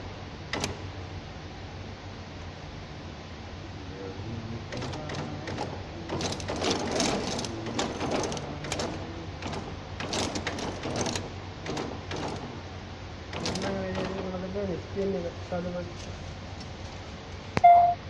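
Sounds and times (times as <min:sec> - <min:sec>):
steady machine hum: 0:00.0 - 0:18.0
sharp mechanical clicks: 0:00.5 - 0:00.9, 0:04.7 - 0:12.6, 0:13.3 - 0:14.3
packing machinery clattering: 0:04.8 - 0:12.7, 0:13.3 - 0:14.4.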